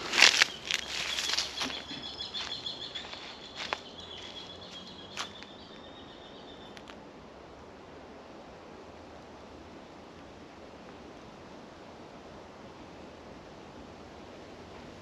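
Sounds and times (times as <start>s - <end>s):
footsteps on dry leaves: 0.0s - 5.8s.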